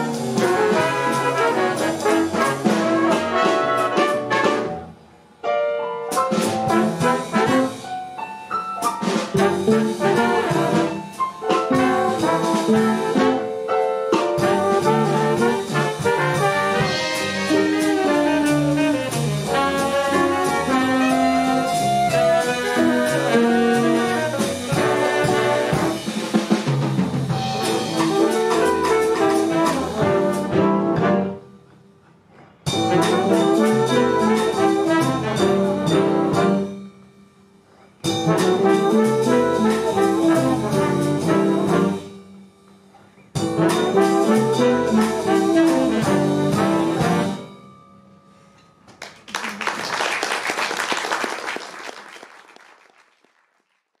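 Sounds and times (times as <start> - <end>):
jazz band playing: 0.0 - 48.5
audience applause: 48.9 - 54.0.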